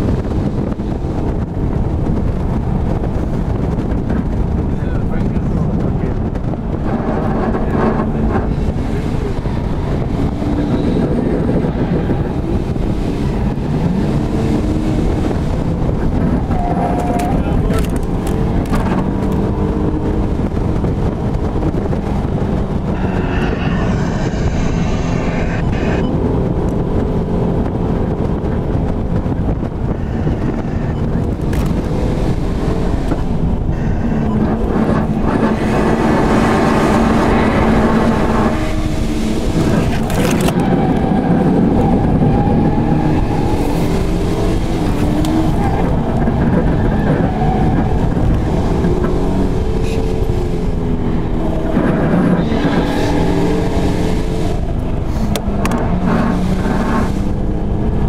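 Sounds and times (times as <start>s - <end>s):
car engine revving: 0.0s - 58.0s
road and wind noise: 0.0s - 58.0s.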